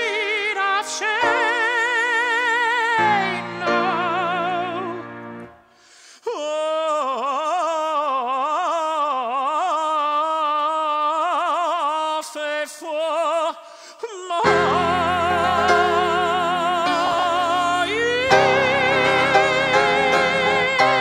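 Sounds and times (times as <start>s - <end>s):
held accompaniment chord: 3.0s - 5.6s, 14.4s - 21.0s
man chanting with vibrato: 14.1s - 21.0s.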